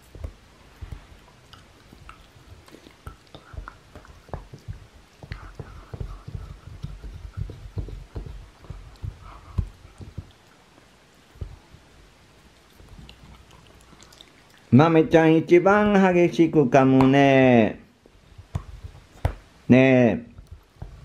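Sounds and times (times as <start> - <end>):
teeth knocking on wood: 0.0 - 10.4
dog gnawing wooden board: 0.0 - 10.5.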